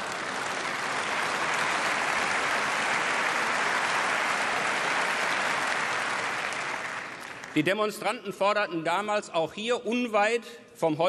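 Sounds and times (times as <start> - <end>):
crowd applauding: 0.0 - 7.7.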